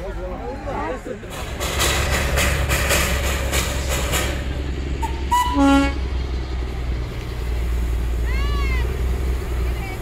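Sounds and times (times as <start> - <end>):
low rumble of train: 0.0 - 10.0
train whistle toot: 5.0 - 6.0.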